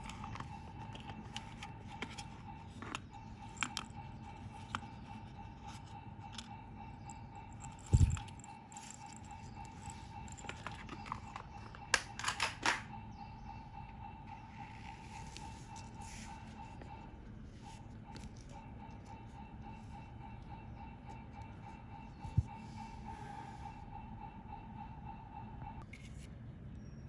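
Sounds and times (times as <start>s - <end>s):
faint hum: 0.0s - 27.0s.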